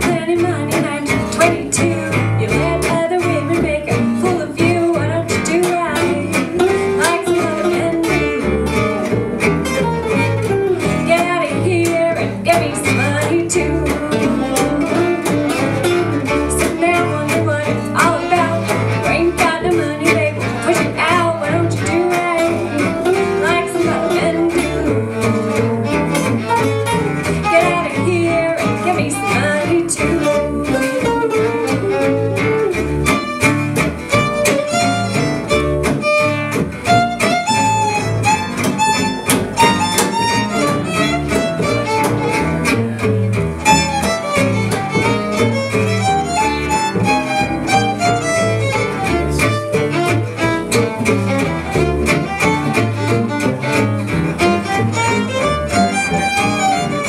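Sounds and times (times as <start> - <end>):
bass: 0.0 - 57.0
strummed rhythm guitar: 0.0 - 57.0
violin lead: 0.0 - 57.0.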